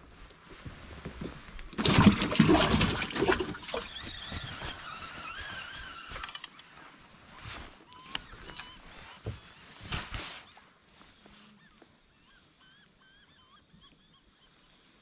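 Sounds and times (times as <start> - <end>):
fish splashing into water: 1.7 - 3.9.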